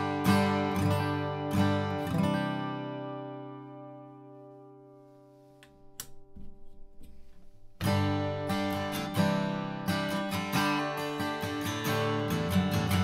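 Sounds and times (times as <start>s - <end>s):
acoustic guitar chord strumming: 0.0s - 13.0s
faint handling noise: 5.1s - 7.9s.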